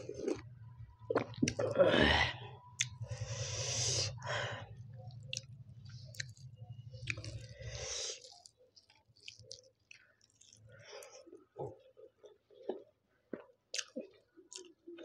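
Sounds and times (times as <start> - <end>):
mouth chewing rice: 0.0 - 1.8, 2.8 - 4.2, 4.8 - 15.0
steady low hum: 0.0 - 7.9
fingers squishing food: 5.0 - 15.0.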